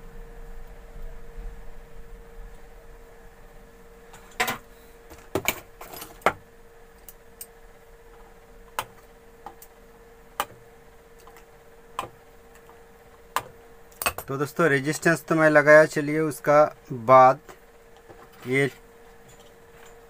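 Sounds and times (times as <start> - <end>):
faint steady hum: 0.0 - 20.0
metal tools clicking and clinking: 18.3 - 20.0.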